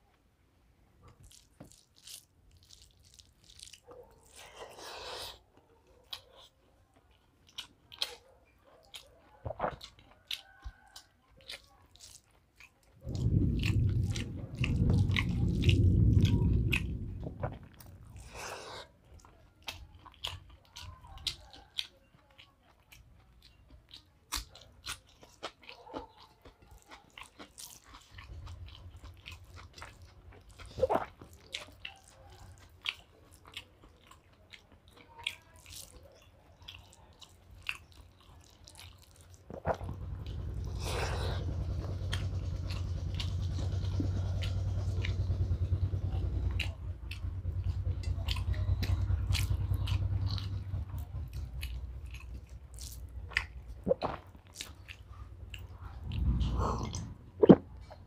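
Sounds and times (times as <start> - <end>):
close chewing and mouth clicks: 1.0 - 58.0
loud low rumble: 13.0 - 18.6, 39.7 - 53.9, 55.2 - 58.0.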